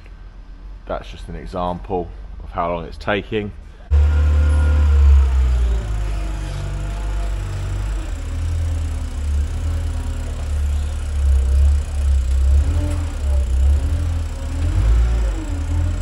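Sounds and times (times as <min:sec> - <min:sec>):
forklift engine rumbling: 0:03.9 - 0:16.0.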